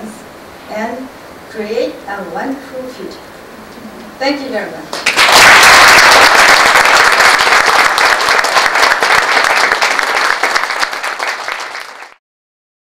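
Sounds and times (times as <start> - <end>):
audience applauding: 5.0 - 12.2.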